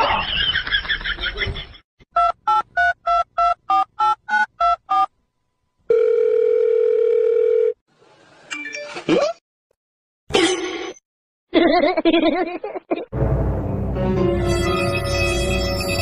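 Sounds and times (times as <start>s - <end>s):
steady dial tone: 5.9s - 7.8s.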